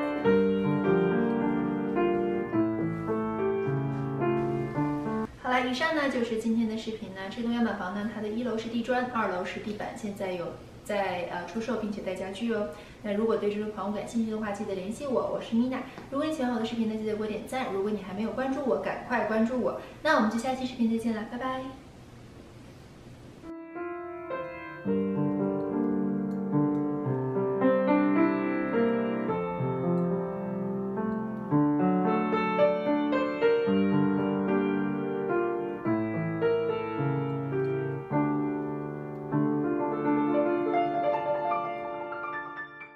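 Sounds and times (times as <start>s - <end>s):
gentle piano music: 0.0s - 5.3s, 23.4s - 42.9s.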